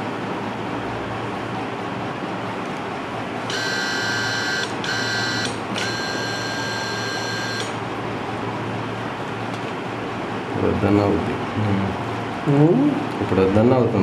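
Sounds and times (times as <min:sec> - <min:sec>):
high electronic tone: 0:03.5 - 0:07.8.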